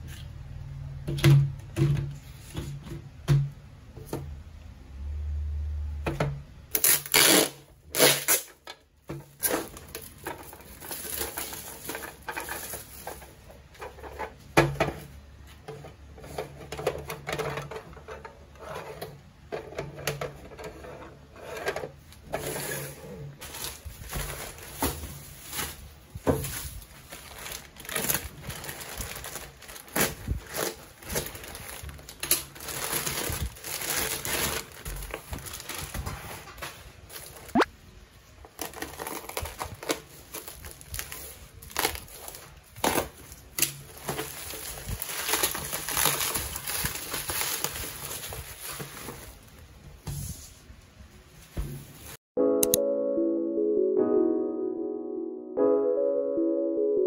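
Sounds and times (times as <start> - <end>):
plastic packaging rustling: 6.8 - 18.9, 21.9 - 37.6, 38.2 - 50.0.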